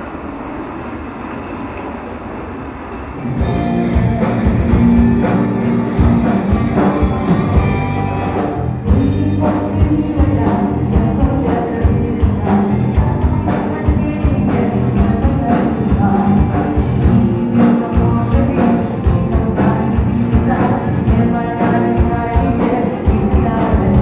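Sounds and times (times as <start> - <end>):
folk-rock band playing live: 3.3 - 24.0.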